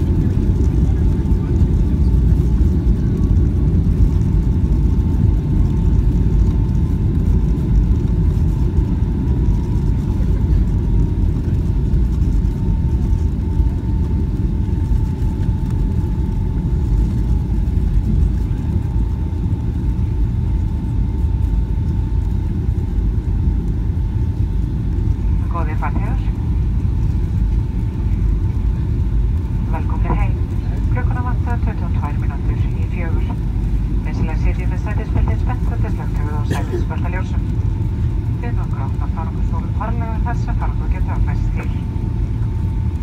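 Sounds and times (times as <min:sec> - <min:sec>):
low rumble of aircraft wheels: 0:00.0 - 0:43.0.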